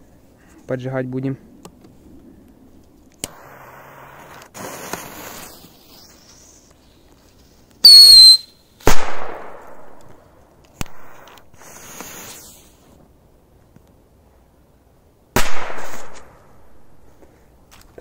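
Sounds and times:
firework shrill whistle: 7.8s - 8.5s
firecracker bang: 15.4s - 16.4s.

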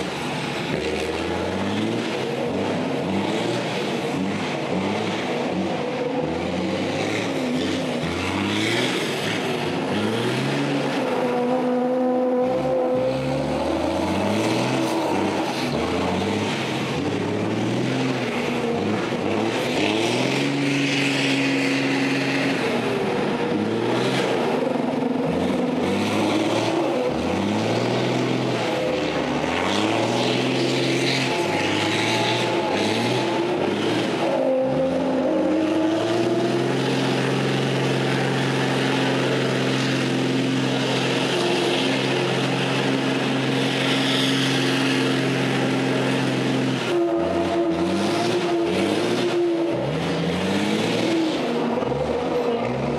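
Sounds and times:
diesel truck engine revving: 0.0s - 52.9s
tyres spinning and spraying: 0.0s - 52.9s.

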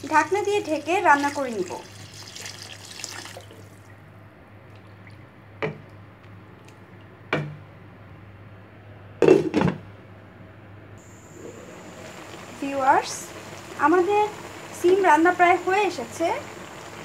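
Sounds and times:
water pouring into curry: 0.9s - 3.8s.

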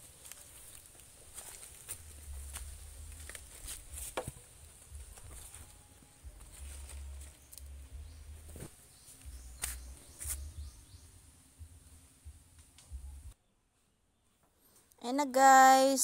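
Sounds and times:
footsteps crackling through dry leaves: 0.0s - 10.8s
sharp snaps: 9.6s - 10.4s.

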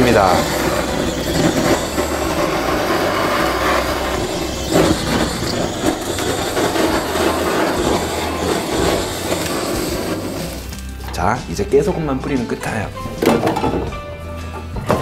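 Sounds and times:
kitchen torch flame rushing: 0.0s - 11.1s.

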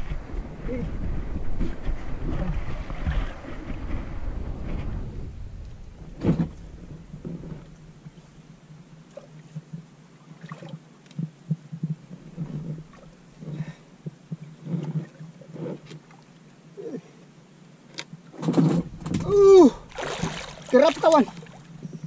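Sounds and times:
water lapping against boat hull: 9.0s - 16.4s, 18.6s - 22.0s.

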